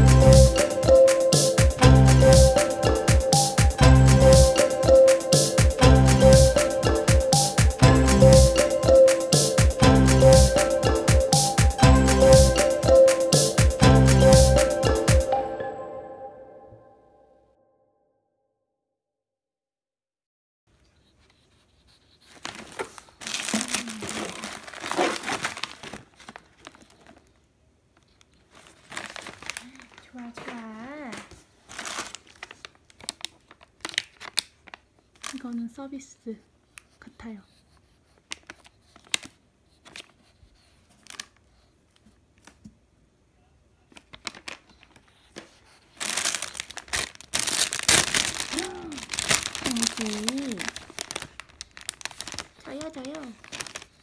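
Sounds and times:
plastic pouches crinkling: 22.3s - 27.4s, 28.1s - 35.7s, 43.9s - 54.0s.

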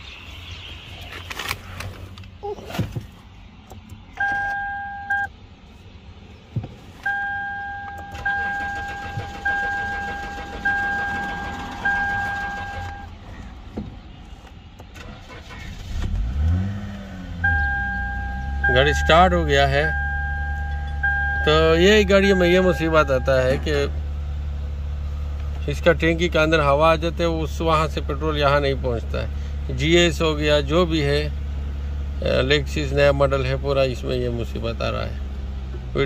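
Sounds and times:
car engine starting and idling: 0.0s - 36.0s
two-note warning chime beeping: 17.5s - 23.6s.

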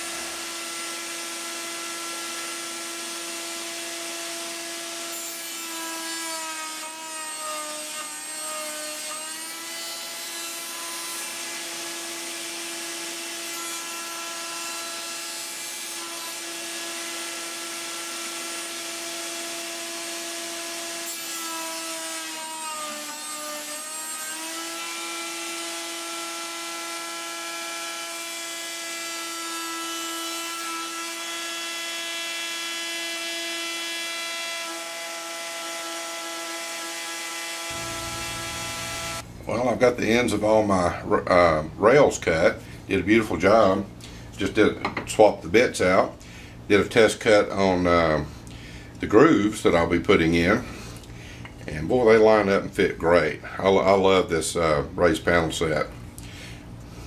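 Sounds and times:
shop vacuum running: 0.0s - 5.0s, 37.4s - 39.7s
router whining: 0.0s - 39.3s.

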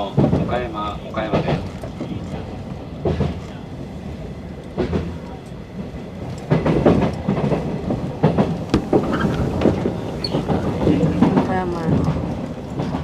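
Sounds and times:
train rumbling from inside: 0.0s - 13.0s
wheels clacking over rail joints: 4.6s - 13.0s.

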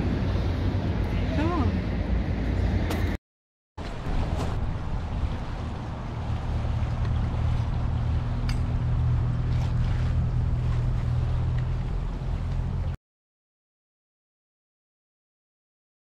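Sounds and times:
boat engine drone: 0.0s - 3.2s, 3.8s - 13.0s.

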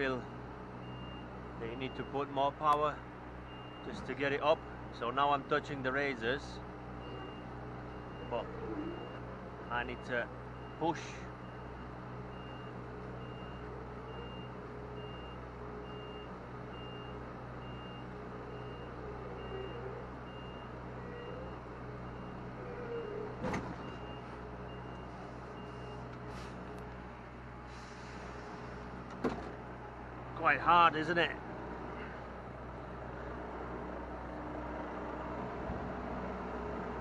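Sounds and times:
diesel engine hum: 0.0s - 37.0s
reversing alarm beeping: 0.8s - 2.2s, 3.4s - 4.0s, 7.0s - 26.1s.

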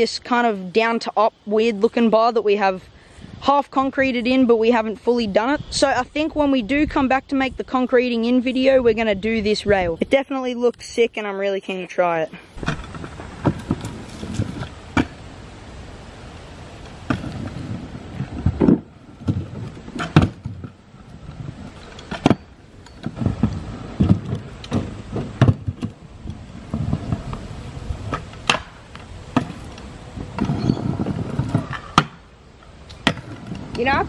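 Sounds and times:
scooter wheels rolling on concrete: 3.7s - 34.0s
scooter deck clacking: 12.6s - 15.2s, 16.8s - 20.8s, 21.6s - 32.2s, 32.8s - 34.0s.

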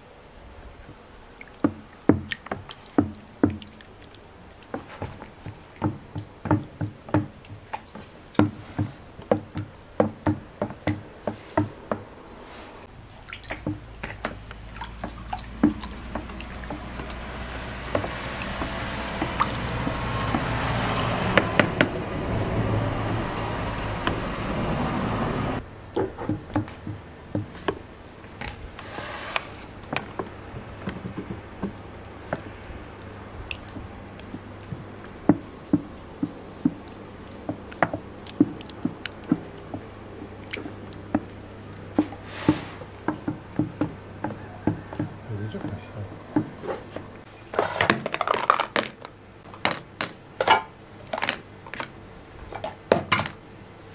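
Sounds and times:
wet sloshing: 0.8s - 24.2s, 25.6s - 50.0s
rushing noise: 17.3s - 25.6s
stick knocking plastic bucket: 17.8s - 21.9s.

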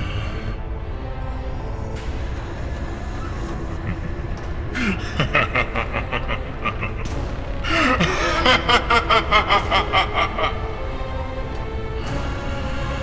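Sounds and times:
background music: 0.0s - 13.0s
people laughing: 3.8s - 11.1s.

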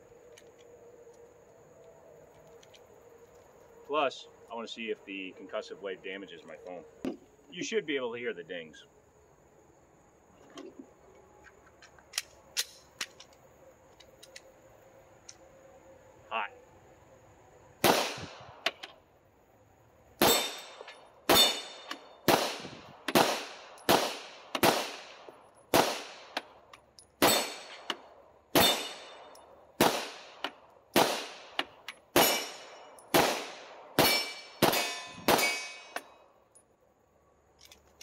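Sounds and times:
pistol shots: 17.8s - 18.6s, 20.2s - 26.5s, 27.2s - 36.1s
bullet ringing on steel target: 20.2s - 22.0s, 27.2s - 27.8s, 28.6s - 29.4s, 32.2s - 33.1s, 34.0s - 36.1s.

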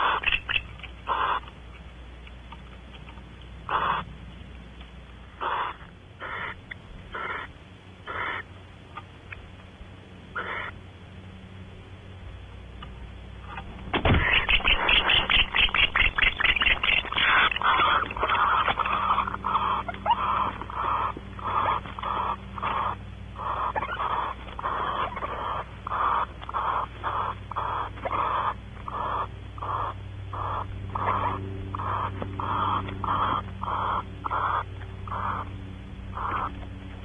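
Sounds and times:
owl rasping hiss-like call: 5.4s - 7.5s, 8.1s - 8.4s, 10.4s - 10.8s.

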